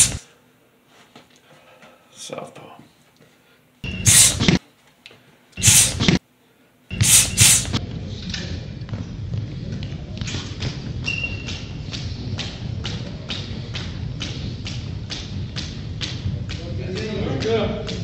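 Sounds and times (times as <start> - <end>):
gym room noise: 0.0 - 18.0
loud bursts of noise: 5.6 - 6.2, 6.9 - 7.8.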